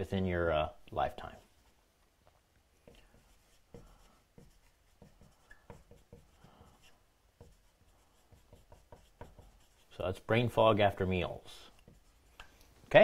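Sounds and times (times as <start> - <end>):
marker writing on whiteboard: 2.8 - 10.0, 11.5 - 12.6.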